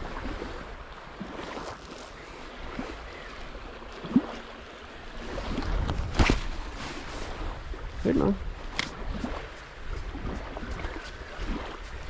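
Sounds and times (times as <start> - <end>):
water sloshing in shallows: 0.0 - 12.0
wind on microphone: 5.2 - 12.0.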